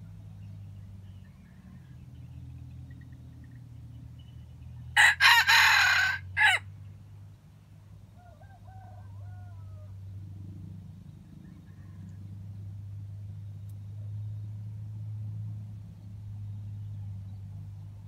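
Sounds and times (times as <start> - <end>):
faint distant rooster crow: 1.1 - 2.4, 4.9 - 6.8, 8.0 - 10.4, 11.2 - 12.8
rooster crowing: 5.0 - 6.7, 8.2 - 10.0.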